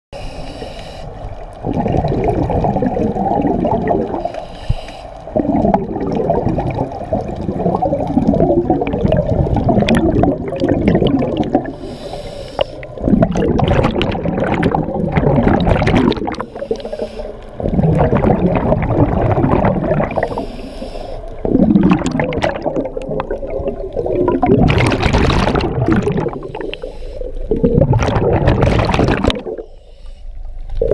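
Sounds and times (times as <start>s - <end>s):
regulator inhale hiss: 0.2s - 1.5s, 4.2s - 5.4s, 11.6s - 13.0s, 16.4s - 17.6s, 20.1s - 21.4s, 26.4s - 27.5s, 29.6s - 30.7s
exhaust bubbles rumbling: 1.6s - 4.3s, 5.3s - 11.8s, 12.9s - 16.8s, 17.5s - 20.4s, 21.4s - 26.8s, 27.5s - 29.6s.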